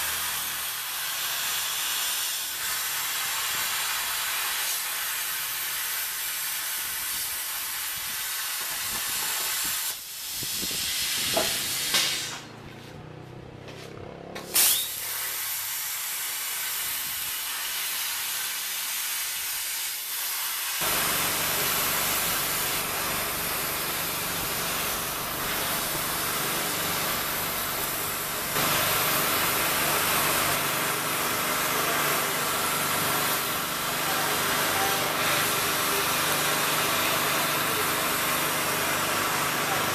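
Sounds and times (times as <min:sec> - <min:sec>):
plasma torch hissing: 0:00.0 - 0:12.5, 0:14.4 - 0:39.9
sharp pops: 0:11.2 - 0:12.5.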